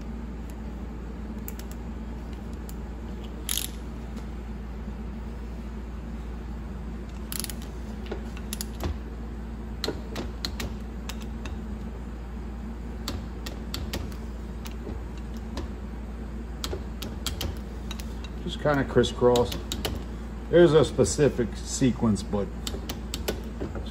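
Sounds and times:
steady low hum: 0:00.0 - 0:23.9
metallic clicks of hand tools: 0:03.5 - 0:03.8.

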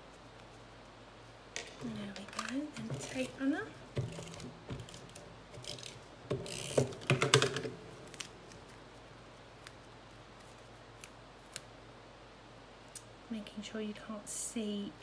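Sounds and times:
paper and card rustling: 0:01.7 - 0:09.0.

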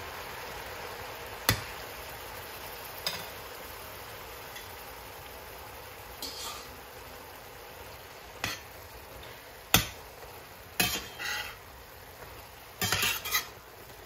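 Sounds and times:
low steady sizzle: 0:00.0 - 0:14.0
spatula clinking and scraping pan: 0:06.2 - 0:06.7, 0:08.4 - 0:08.7, 0:10.8 - 0:11.6, 0:12.8 - 0:13.6.

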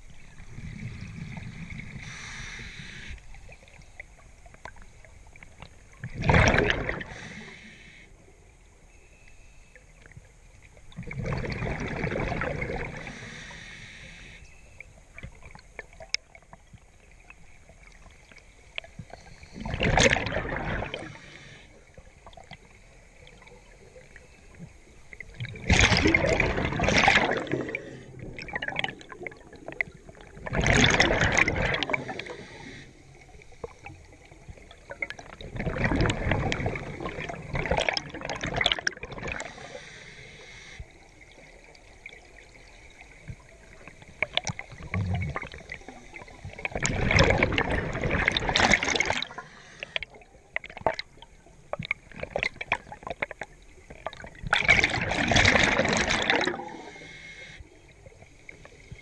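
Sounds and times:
underwater bubbles gurgling: 0:00.0 - 0:08.5, 0:09.9 - 0:59.0.

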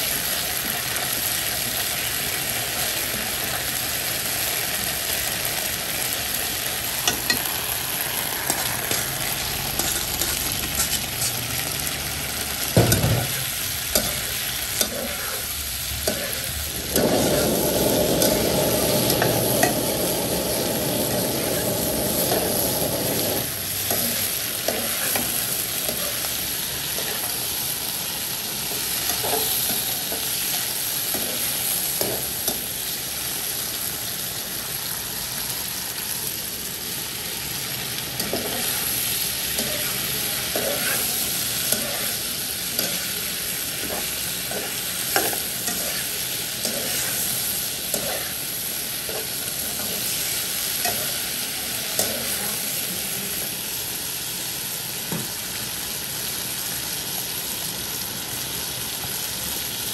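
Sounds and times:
food sizzling in oil: 0:00.0 - 0:59.9
spatula scraping a pan: 0:08.4 - 0:11.6, 0:39.5 - 0:43.2, 0:43.8 - 0:47.4.

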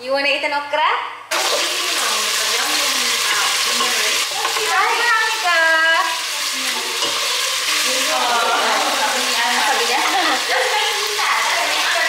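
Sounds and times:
food sizzling in a pot: 0:01.3 - 0:12.0
wooden spoon stirring: 0:01.4 - 0:05.7.

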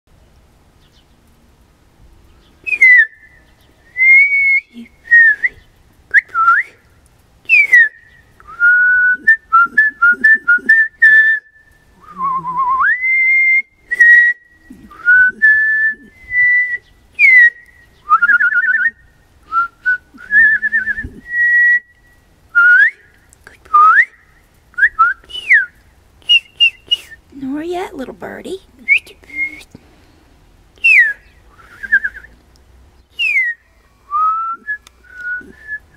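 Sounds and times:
woman whistling bird-like calls: 0:02.7 - 0:06.8, 0:07.5 - 0:23.0, 0:23.7 - 0:24.2, 0:24.8 - 0:27.2, 0:28.9 - 0:29.7, 0:30.8 - 0:32.4, 0:33.2 - 0:35.9.

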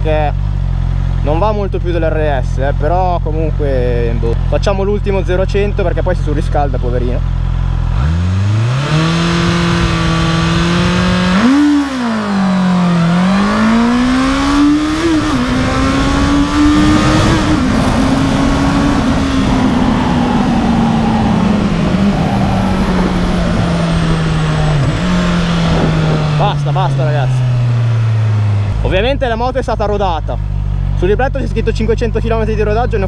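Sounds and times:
motorcycle engine revving: 0:00.0 - 0:33.0
rushing wind: 0:07.9 - 0:29.0.

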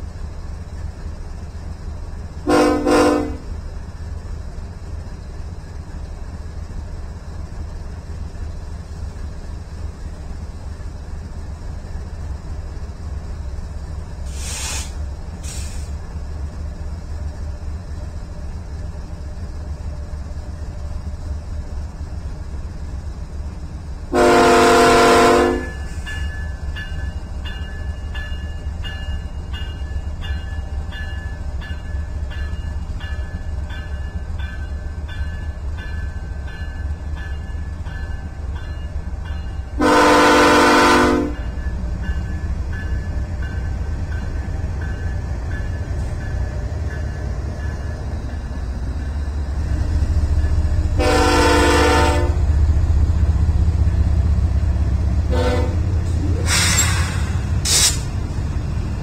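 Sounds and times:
train rumbling: 0:00.0 - 0:59.0
locomotive air horn blast: 0:02.4 - 0:03.5, 0:24.1 - 0:25.8, 0:39.8 - 0:41.4, 0:51.0 - 0:52.4, 0:55.3 - 0:58.0
crossing bell dinging: 0:25.6 - 0:40.0, 0:41.3 - 0:49.2.

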